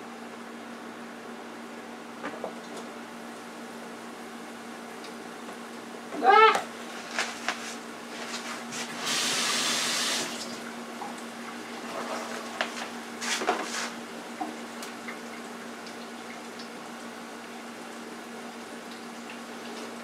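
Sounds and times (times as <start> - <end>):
low frying hiss: 0.0 - 20.0
food sizzling in deep fryer oil: 8.2 - 10.6.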